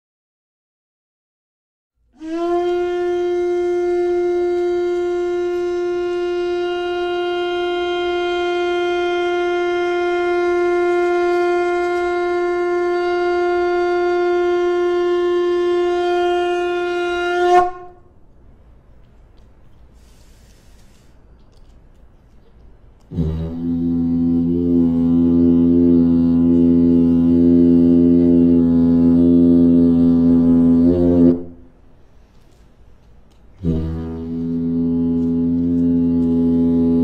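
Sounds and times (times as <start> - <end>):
conch shell trumpet long note: 2.1 - 18.2, 23.1 - 31.8, 33.6 - 37.0.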